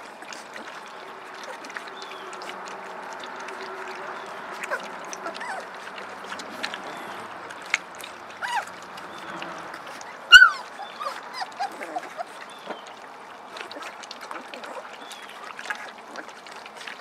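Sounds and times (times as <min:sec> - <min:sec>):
puppies whimpering and squeaking: 0:00.0 - 0:16.6
puppies lapping food: 0:00.0 - 0:17.0
puppy yelping: 0:04.3 - 0:12.4.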